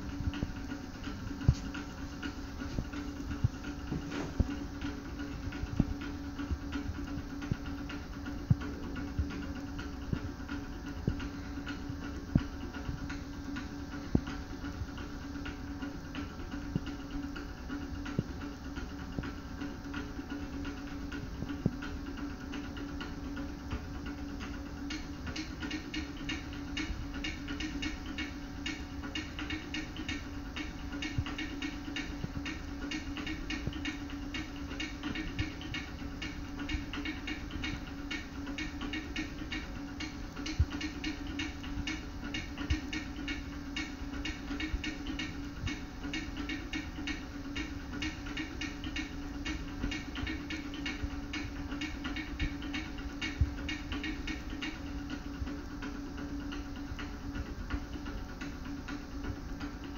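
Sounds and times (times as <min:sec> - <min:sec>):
dance music through tv speaker: 0:00.0 - 0:59.9
steady hum: 0:00.0 - 0:59.9.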